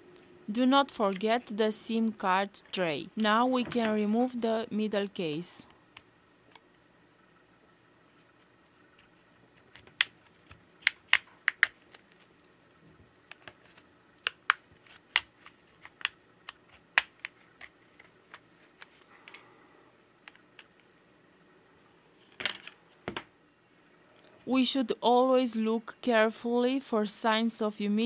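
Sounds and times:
plastic clips popping: 9.6 - 12.1, 13.3 - 19.4.

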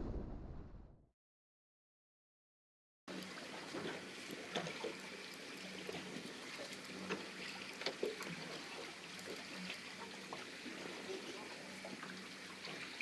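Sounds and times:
water lapping against hull: 3.3 - 13.0.

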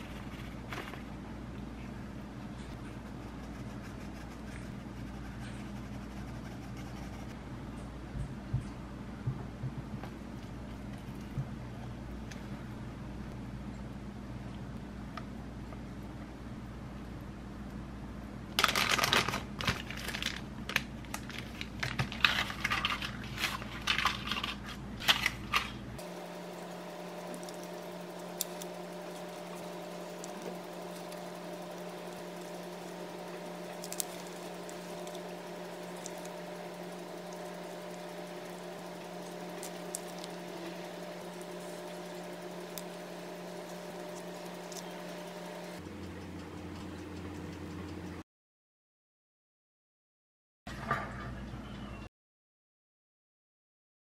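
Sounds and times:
background hum: 0.0 - 48.2
plastic piping bag crinkling: 18.6 - 25.7, 38.3 - 43.0.

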